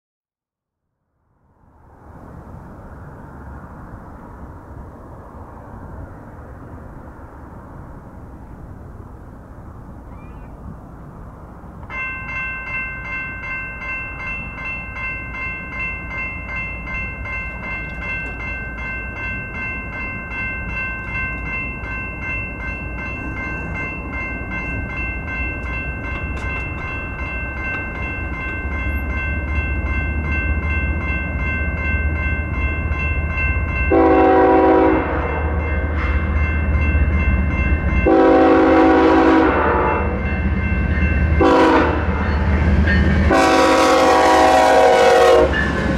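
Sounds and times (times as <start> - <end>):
freight train rumble: 1.3 - 45.9
railroad crossing bell ringing: 11.7 - 45.9
locomotive horn blasts: 33.9 - 36.3, 38.0 - 40.2, 41.4 - 42.2, 43.3 - 45.6.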